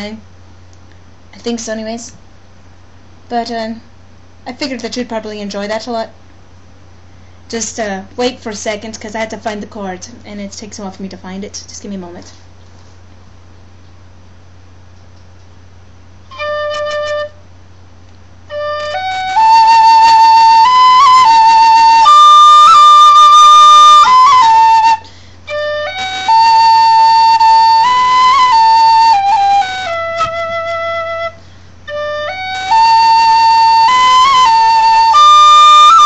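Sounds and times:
steady low hum: 0.0s - 36.0s
tin whistle melody: 16.3s - 17.4s, 18.5s - 36.0s.

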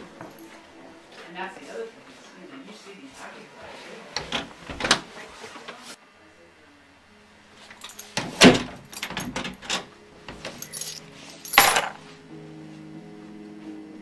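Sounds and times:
soft music: 0.0s - 4.2s, 6.9s - 14.0s
keys rattling in a door lock: 7.8s - 12.0s
key ring jangling on a table: 10.5s - 12.0s.

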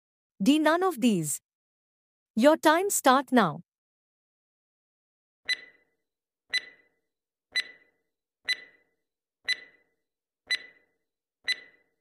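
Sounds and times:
clock ticking: 5.5s - 5.8s, 6.5s - 6.8s, 7.5s - 8.9s, 9.5s - 9.9s, 10.5s - 12.0s.

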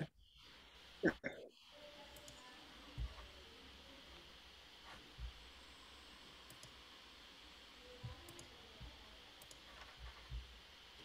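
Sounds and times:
computer mouse clicks: 2.1s - 3.2s, 6.5s - 6.8s, 8.0s - 8.5s, 9.4s - 10.5s
soft low thumps: 2.9s - 3.3s, 5.1s - 5.5s, 10.0s - 10.6s.

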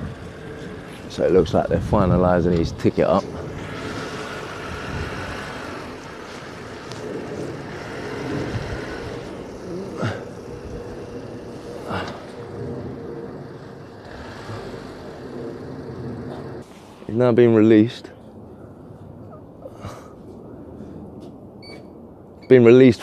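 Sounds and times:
vehicle engine running: 0.0s - 16.7s
faint constant hum: 0.0s - 23.0s
traffic: 0.0s - 23.0s.

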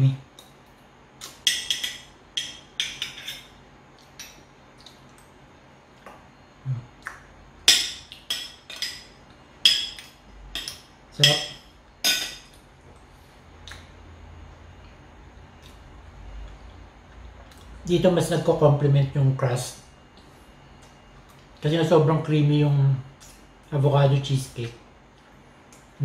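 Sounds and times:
spoons clinking on ceramic plate: 1.4s - 3.5s, 7.7s - 12.6s.

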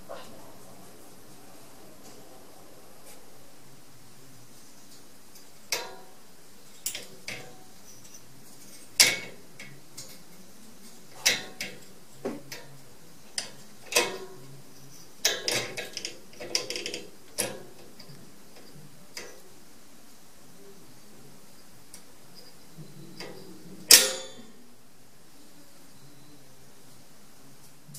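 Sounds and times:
metal cage latch clicking: 5.7s - 6.0s, 9.0s - 10.2s, 11.2s - 11.8s, 13.4s - 14.4s, 15.2s - 18.2s, 23.2s - 24.5s.

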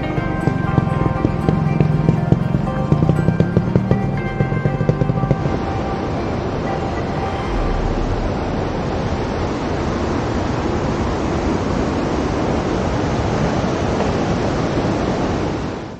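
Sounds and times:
river rushing: 0.0s - 15.9s.

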